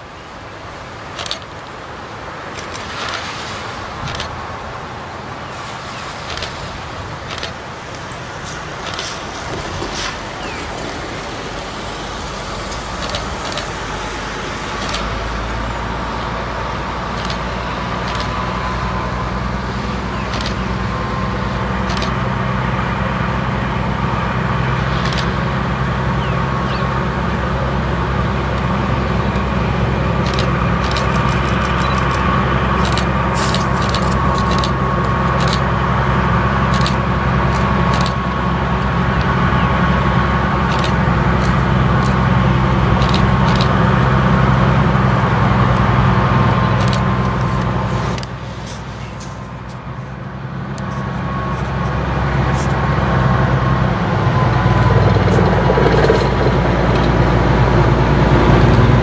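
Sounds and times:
diesel locomotive engine hum: 0.0 - 59.0
thin steady whine: 0.0 - 59.0
sharp clicks: 7.3 - 8.1, 12.7 - 13.8, 14.8 - 15.1, 17.2 - 18.4, 20.3 - 20.7, 21.9 - 22.2, 25.0 - 25.4, 30.2 - 34.8, 43.0 - 43.7.

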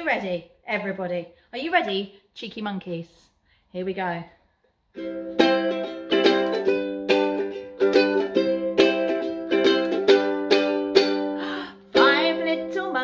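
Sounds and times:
ukulele strumming: 5.0 - 13.0.

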